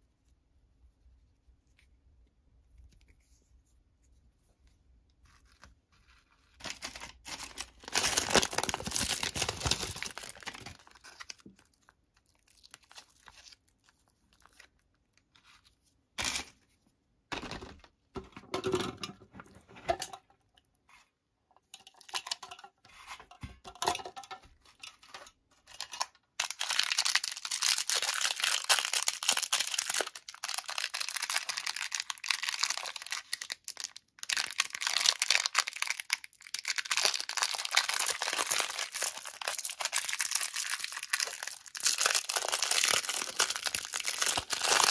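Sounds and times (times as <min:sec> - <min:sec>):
plastic wrappers crinkling: 0:06.5 - 0:15.3, 0:24.6 - 0:44.9.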